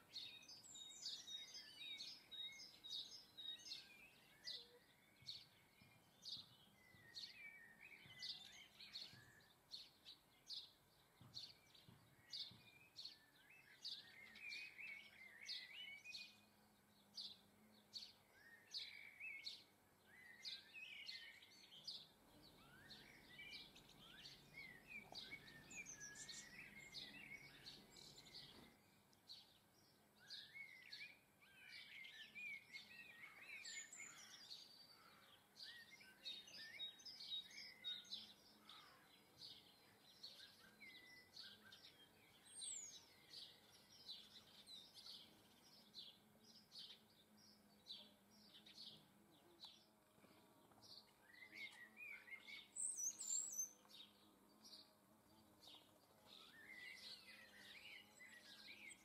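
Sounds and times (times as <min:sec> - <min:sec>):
songbirds twittering: 0:00.0 - 0:59.0.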